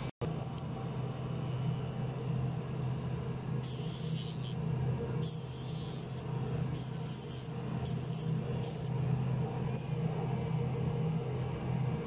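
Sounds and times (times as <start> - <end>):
grinder tip hissing on claws: 3.6 - 4.6, 6.8 - 8.9
nail grinder humming: 3.6 - 4.6, 5.2 - 8.9.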